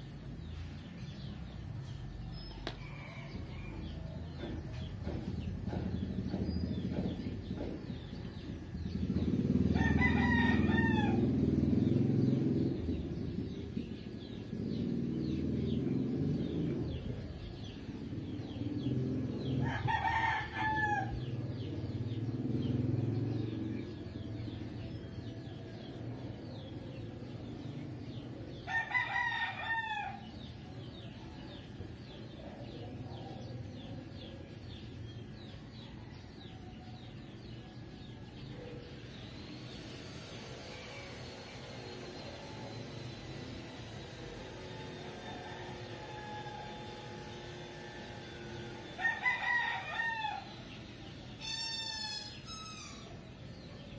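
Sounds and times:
rooster crowing: 2.6 - 4.3, 9.6 - 11.6, 19.5 - 21.4, 28.7 - 30.4, 44.4 - 50.8, 51.4 - 53.2.

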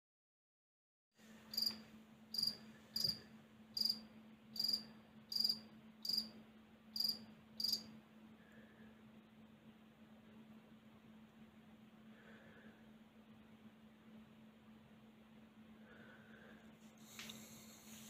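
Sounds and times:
faint steady hum: 1.2 - 18.0
cricket chirping: 1.5 - 3.2, 3.8 - 7.9.

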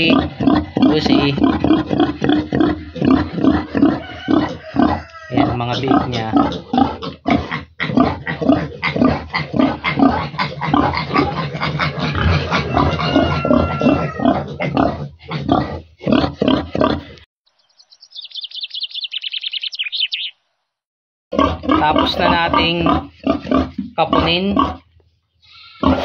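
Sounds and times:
high piglet call: 0.0 - 14.9, 25.4 - 26.0
pigs grunting: 0.0 - 17.2, 21.3 - 24.9, 25.5 - 26.0.

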